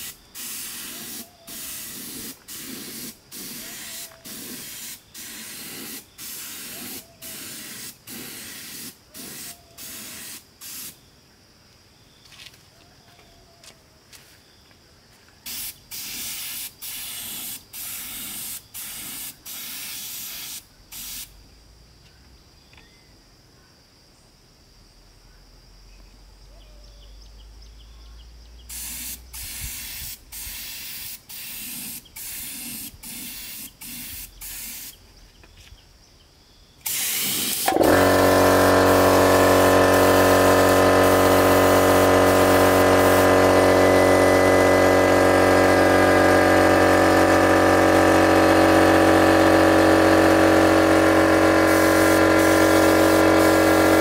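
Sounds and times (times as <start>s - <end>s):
paint spray gun hissing: 0.0s - 11.0s, 15.4s - 21.4s, 28.7s - 35.0s, 36.8s - 54.0s
air compressor motor hum: 36.9s - 54.0s.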